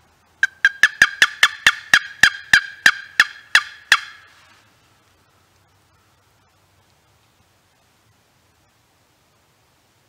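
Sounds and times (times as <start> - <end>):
wooden box turkey call: 0.4 - 4.4.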